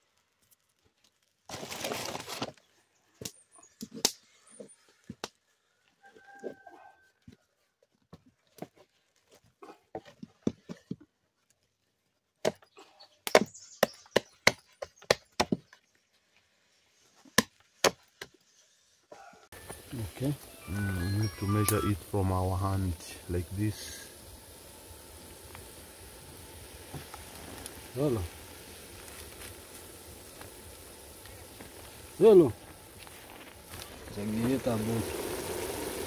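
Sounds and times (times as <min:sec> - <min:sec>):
rustle: 0:00.0 - 0:02.8, 0:18.4 - 0:36.0.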